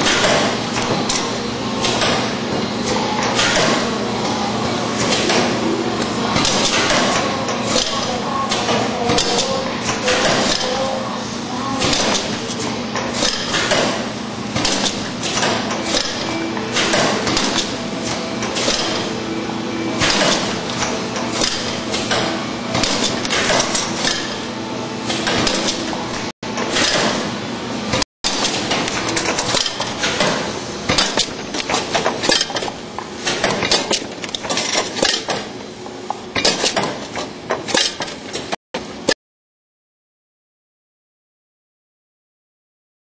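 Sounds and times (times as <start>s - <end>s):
packaging machine running: 0.0s - 39.0s
clattering machine stroke: 11.8s - 38.6s.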